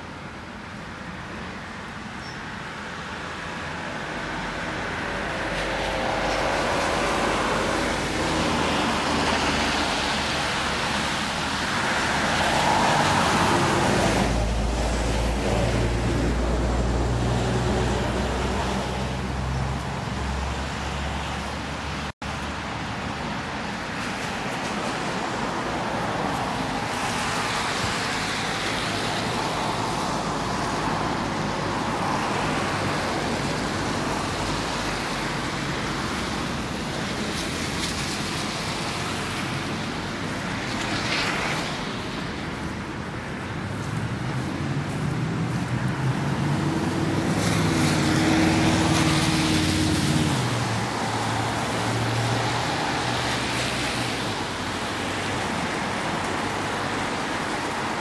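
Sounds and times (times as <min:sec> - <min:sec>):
tyres hissing on wet road: 0:00.0 - 0:58.0
vehicle engine passing: 0:43.6 - 0:54.3.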